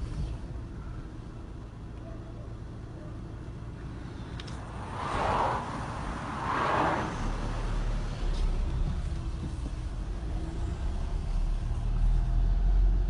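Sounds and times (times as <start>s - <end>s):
car engine and tyre rumble: 0.0s - 13.0s.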